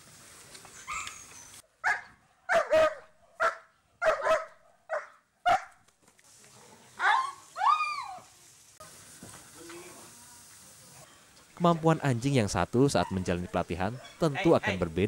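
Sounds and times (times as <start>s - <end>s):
dog barking sharply: 1.8s - 5.8s.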